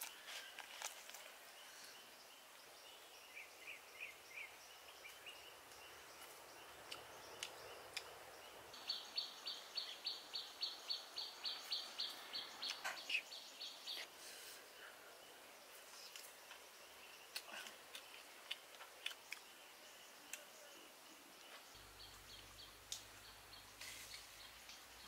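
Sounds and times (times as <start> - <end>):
bird chirps: 1.6 - 14.1.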